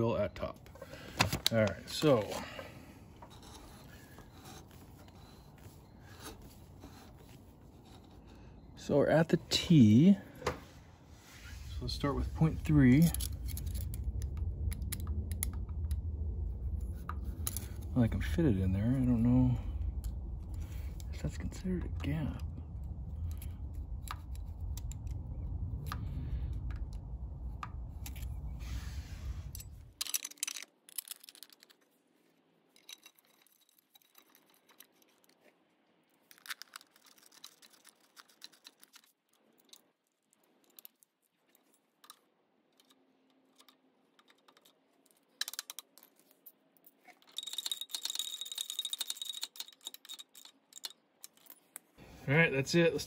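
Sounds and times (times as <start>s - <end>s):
low rumble: 8.3s - 30.0s
hand tools clicking and rattling: 29.5s - 31.9s, 32.7s - 35.5s, 40.6s - 52.0s.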